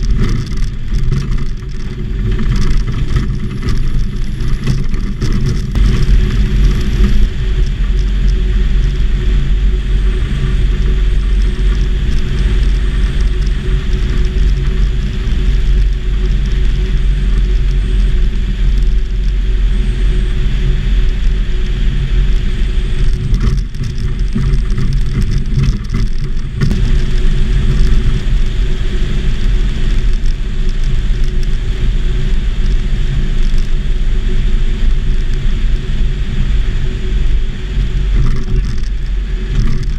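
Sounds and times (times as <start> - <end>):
propeller engine running: 0.0 - 39.9.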